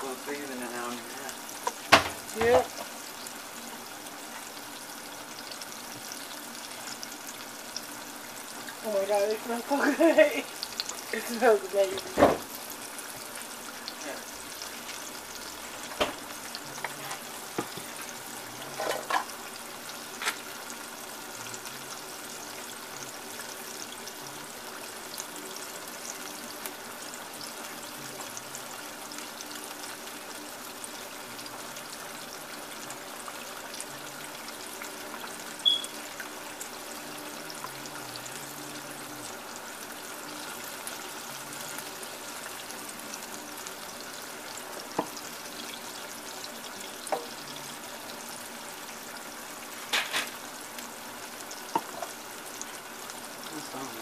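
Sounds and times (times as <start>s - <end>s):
food deep-frying in oil: 0.0s - 54.0s
short high blip: 35.6s - 35.9s.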